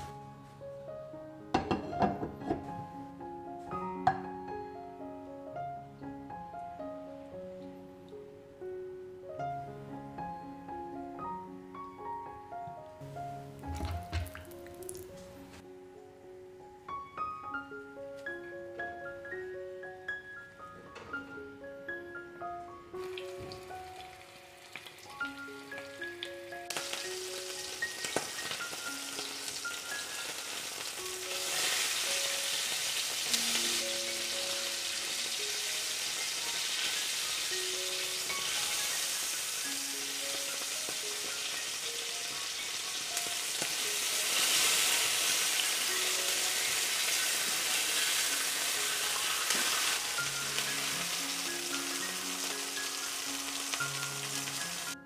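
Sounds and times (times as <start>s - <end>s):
soft background music: 0.0s - 55.0s
meat sizzling in a pan: 23.0s - 55.0s.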